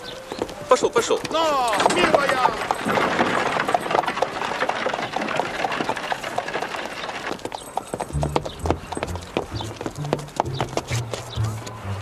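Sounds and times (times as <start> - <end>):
horse hooves clip-clopping on street: 0.0 - 12.0
low music notes: 8.1 - 12.0.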